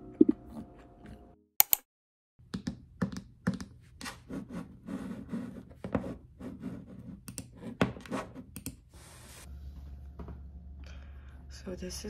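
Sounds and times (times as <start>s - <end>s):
keyboard key clicks: 1.6s - 1.8s.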